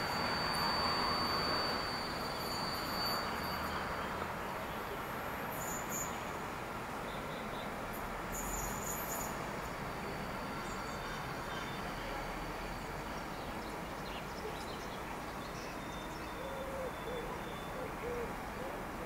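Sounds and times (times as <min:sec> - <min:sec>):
pigeon cooing: 0:16.4 - 0:18.8.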